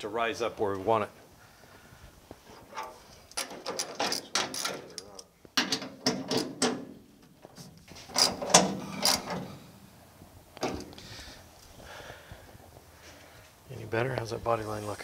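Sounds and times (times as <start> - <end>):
ratchet wrench clicking: 9.0 - 9.3.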